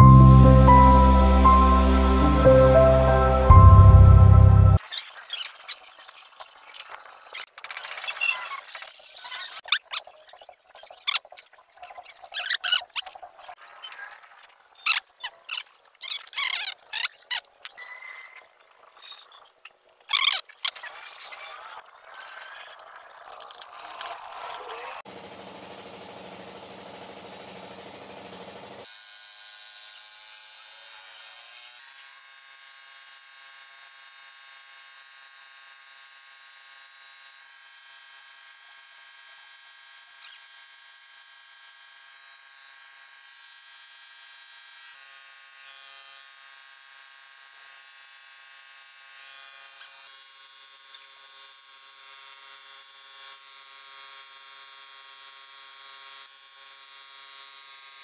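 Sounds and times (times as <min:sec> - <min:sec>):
air compressor motor buzzing: 0:25.1 - 0:28.8.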